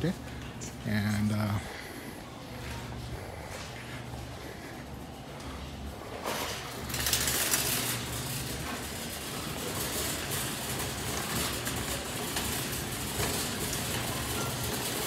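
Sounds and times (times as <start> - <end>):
cart rattling and rumbling: 2.6 - 15.0.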